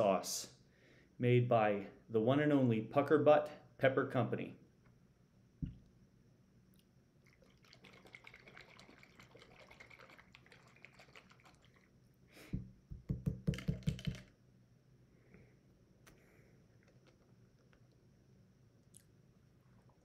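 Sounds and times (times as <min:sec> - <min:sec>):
sauce sloshing in bottle: 0:07.2 - 0:12.0.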